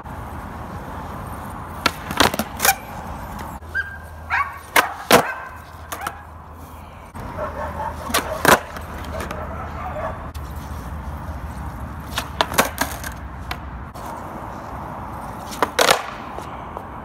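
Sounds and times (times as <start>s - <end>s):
skateboard wheels rolling on concrete: 0.0s - 17.0s
skateboard clacks: 1.7s - 3.5s, 4.6s - 6.4s, 7.7s - 10.4s, 11.7s - 14.2s, 15.4s - 17.0s.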